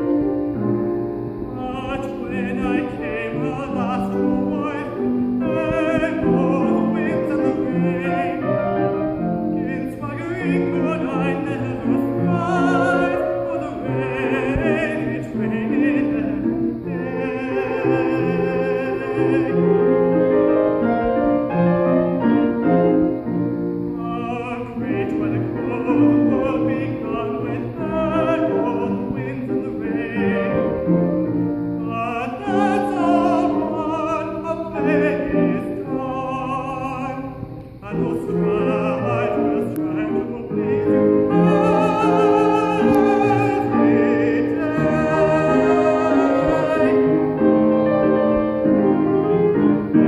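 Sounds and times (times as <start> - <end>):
grand piano accompaniment: 0.0 - 50.0
man singing with vibrato: 0.0 - 50.0.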